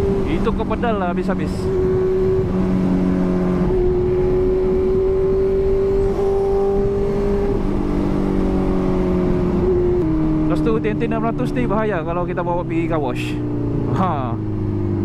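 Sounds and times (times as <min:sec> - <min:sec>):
wind noise: 0:00.0 - 0:11.8
motorcycle engine cruising: 0:00.0 - 0:15.0.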